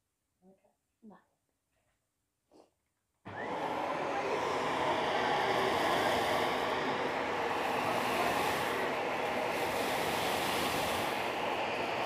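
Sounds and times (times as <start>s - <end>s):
vacuum cleaner motor running: 3.3s - 12.0s
air rushing through hose: 3.4s - 12.0s.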